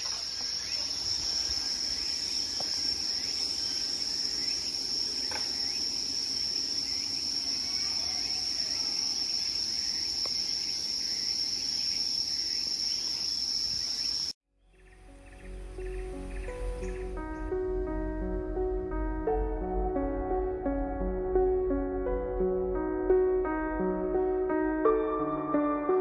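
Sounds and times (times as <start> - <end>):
insects trilling chorus: 0.0 - 18.9.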